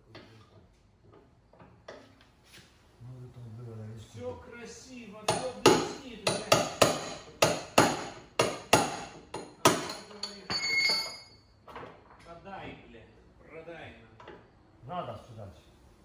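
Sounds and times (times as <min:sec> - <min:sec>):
hammer striking metal: 0:05.3 - 0:11.2.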